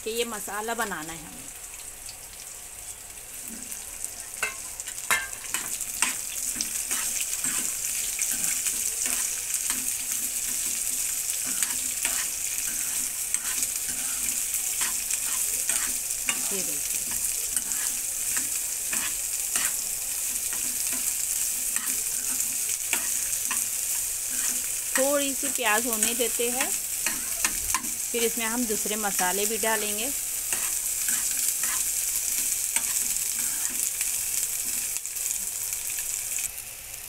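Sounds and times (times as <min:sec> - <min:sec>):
onions sizzling in hot oil: 0:00.0 - 0:37.0
metal spoon scraping pan: 0:04.4 - 0:25.1, 0:25.9 - 0:28.0, 0:30.5 - 0:33.9.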